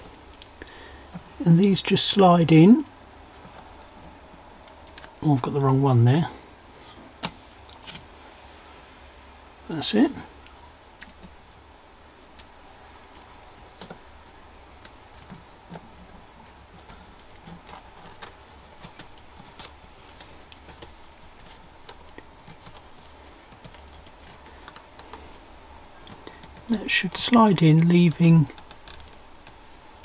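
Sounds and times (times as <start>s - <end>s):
fingers handling plastic parts: 3.3s - 5.2s, 13.1s - 14.1s, 14.7s - 29.7s
small plastic clicks and ticks: 27.3s - 29.6s.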